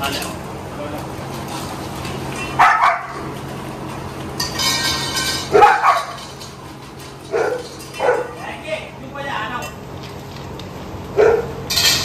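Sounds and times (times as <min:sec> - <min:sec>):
dog barking: 0:02.6 - 0:03.2, 0:05.5 - 0:06.2, 0:07.3 - 0:08.4, 0:11.2 - 0:11.6.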